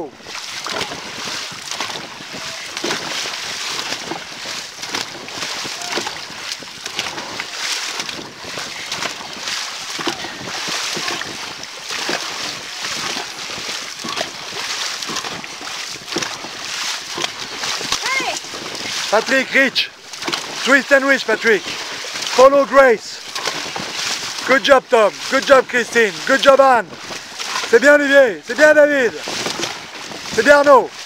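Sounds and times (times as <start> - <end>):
wind noise on microphone: 0.0 - 19.2, 29.1 - 31.0
paddles splashing into water: 0.0 - 31.0.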